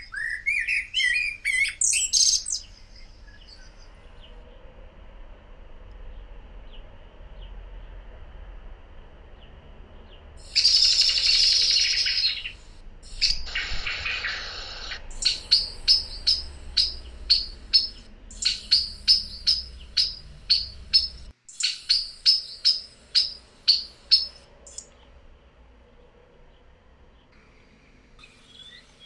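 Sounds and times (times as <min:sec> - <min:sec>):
blackbird calling: 0:00.0 - 0:03.9, 0:10.4 - 0:25.0, 0:28.2 - 0:29.0.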